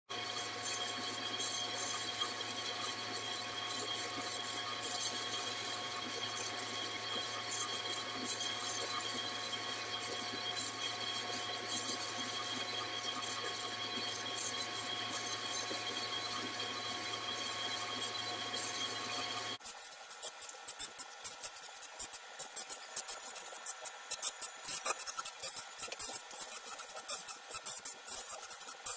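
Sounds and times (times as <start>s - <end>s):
machine hum and whine: 0.1s - 28.9s
laser hissing and crackling on metal: 18.6s - 28.9s.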